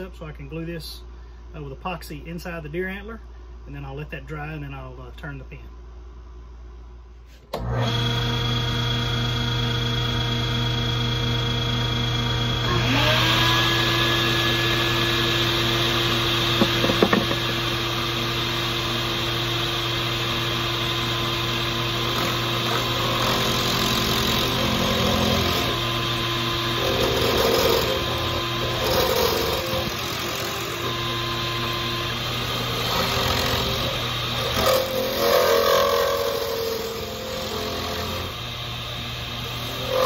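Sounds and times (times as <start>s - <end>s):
background hum: 0.0s - 7.8s
power tool motor running: 7.6s - 40.0s.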